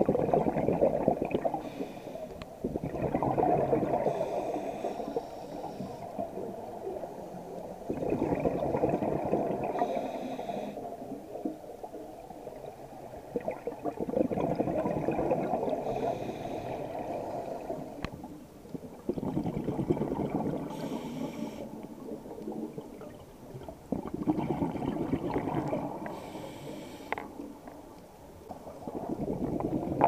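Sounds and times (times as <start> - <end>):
bubbling exhalation underwater: 0.0 - 1.7, 2.6 - 4.4, 7.9 - 9.9, 13.3 - 16.0, 18.9 - 20.8, 22.8 - 26.1, 28.9 - 30.0.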